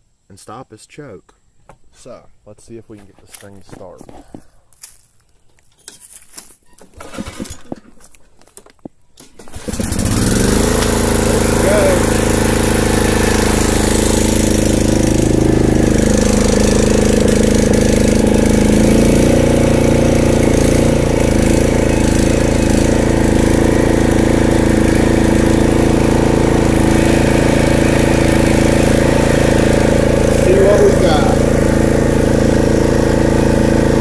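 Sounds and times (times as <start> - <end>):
small mower engine running: 6.9 - 8.1, 9.2 - 34.0.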